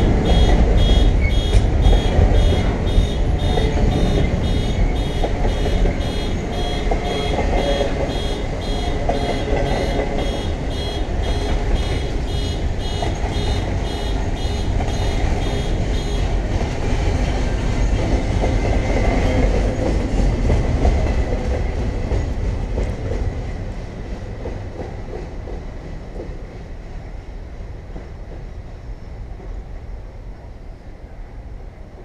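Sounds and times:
wheels clicking over rail joints: 0:00.0 - 0:23.7
freight train rumbling past: 0:00.0 - 0:32.0.

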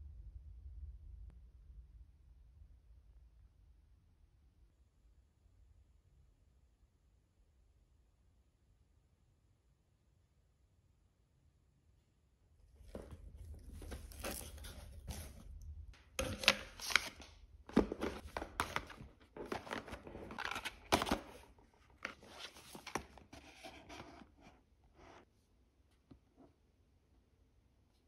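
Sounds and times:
cardboard tearing and rustling: 0:12.8 - 0:15.4, 0:16.2 - 0:24.2
packets tapping and knocking: 0:12.8 - 0:15.4, 0:16.0 - 0:23.3.

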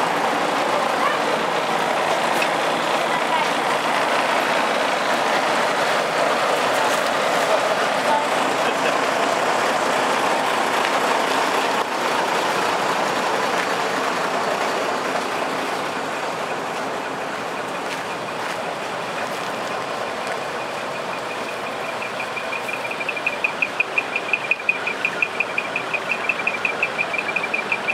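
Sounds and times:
truck engines running: 0:00.0 - 0:27.9
fast electronic beeping: 0:21.0 - 0:27.9.

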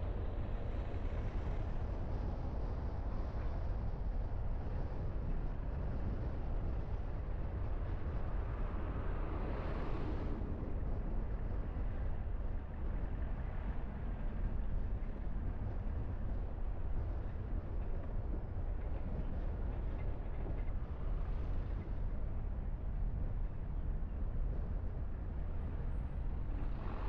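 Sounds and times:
car engine and tyre rumble: 0:00.0 - 0:27.0.

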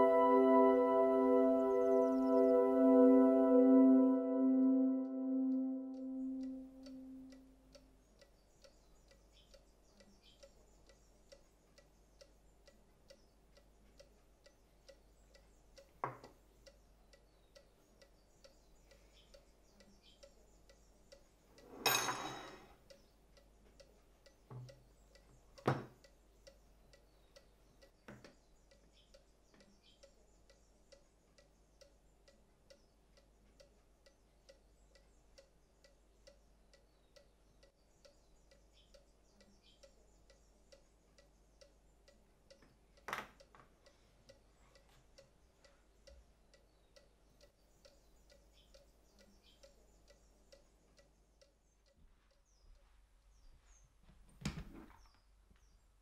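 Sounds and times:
clock ticking: 0:00.0 - 0:53.0
knocks and clinks: 0:21.7 - 0:22.8.

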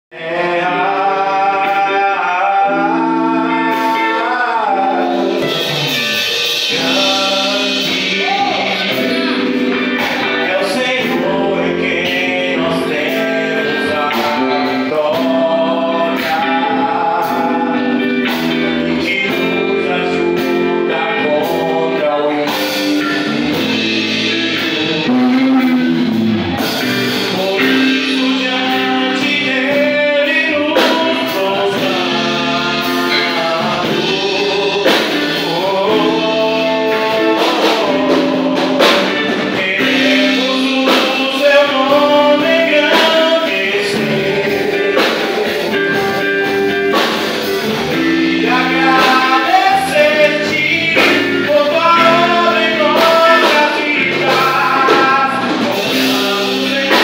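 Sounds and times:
man singing into a microphone: 0:00.1 - 0:57.0
sustained instrumental chords: 0:00.2 - 0:57.0.

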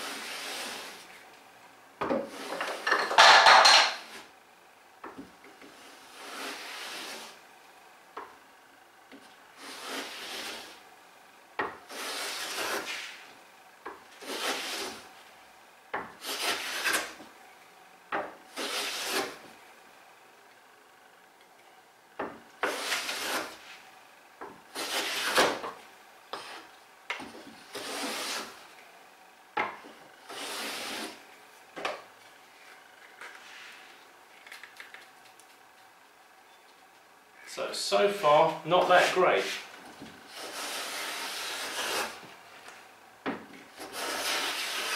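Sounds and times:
hand plane rasping along wood: 0:09.6 - 0:10.7, 0:11.9 - 0:13.1, 0:14.2 - 0:15.0, 0:16.2 - 0:17.1, 0:18.5 - 0:19.4, 0:22.6 - 0:23.6, 0:24.8 - 0:25.5, 0:27.7 - 0:28.5, 0:30.3 - 0:31.2, 0:40.3 - 0:42.2, 0:43.8 - 0:44.9.

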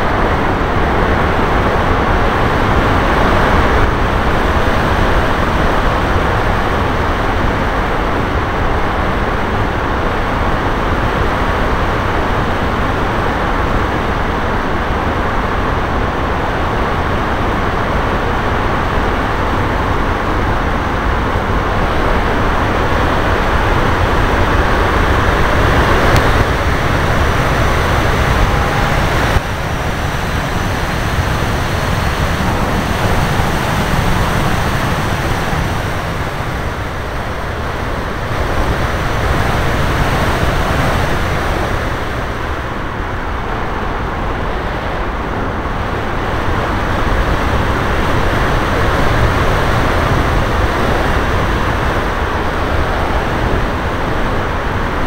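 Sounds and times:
air rushing over microphone: 0:16.3 - 0:55.0.

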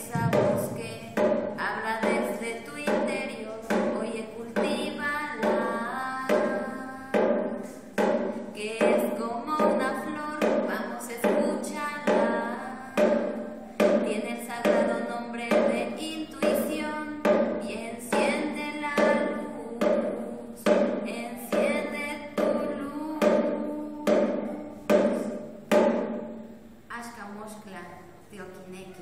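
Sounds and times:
sharp struck beat: 0:00.0 - 0:26.9
person singing: 0:17.7 - 0:24.8.

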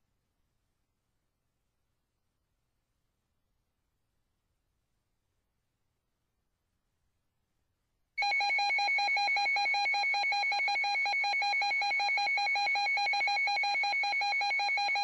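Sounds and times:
rapid alarm beeping: 0:08.2 - 0:15.0.

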